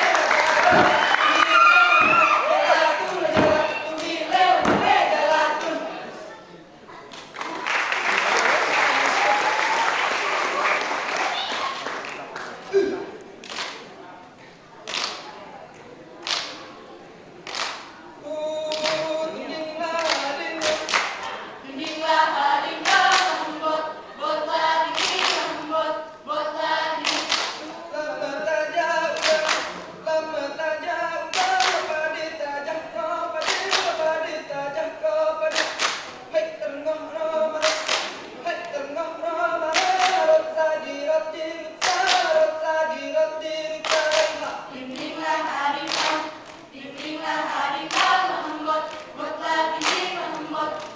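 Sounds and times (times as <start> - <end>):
group singing without instruments: 0.0 - 6.3, 18.2 - 50.9
sharp hand claps: 13.4 - 13.9, 14.9 - 15.3, 16.2 - 16.6, 17.4 - 17.9, 18.7 - 19.1, 20.0 - 21.2, 22.8 - 23.4, 24.9 - 25.5, 27.0 - 27.6, 29.2 - 29.8, 31.3 - 31.9, 33.4 - 34.0, 35.5 - 36.2, 37.6 - 38.2, 39.7 - 40.4, 41.8 - 42.4, 43.8 - 45.1, 45.9 - 46.6, 47.9 - 48.2, 49.8 - 50.1.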